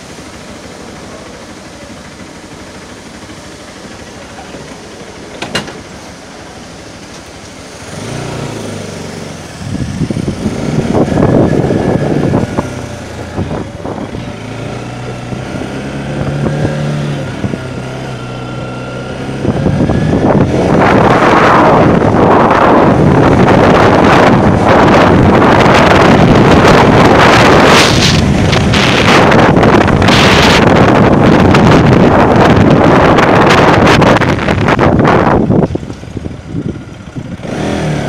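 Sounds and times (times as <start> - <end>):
motorcycle engine revving: 0.0 - 38.0
wind noise on microphone: 7.8 - 38.0.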